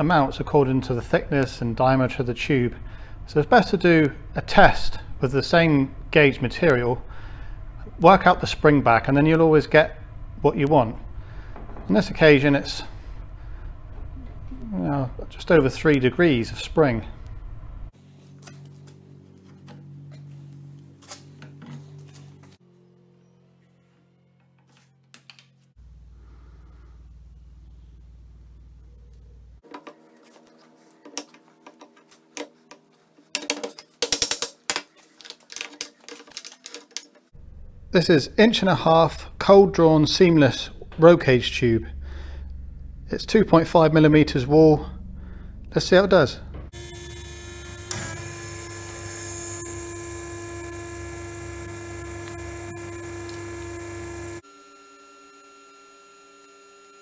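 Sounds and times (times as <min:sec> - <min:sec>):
low hum: 0:00.0 - 0:18.0, 0:25.8 - 0:29.6, 0:37.4 - 0:54.4
electric motor and pump humming: 0:46.4 - 0:57.0.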